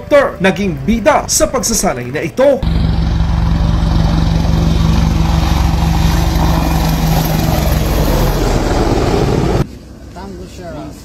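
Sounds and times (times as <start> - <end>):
helicopter rotor and engine: 2.6 - 9.7.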